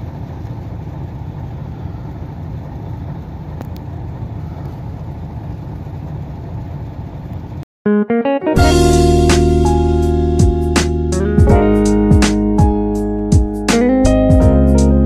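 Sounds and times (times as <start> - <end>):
truck engine idling: 0.0 - 7.6
faint clicks: 3.5 - 3.9.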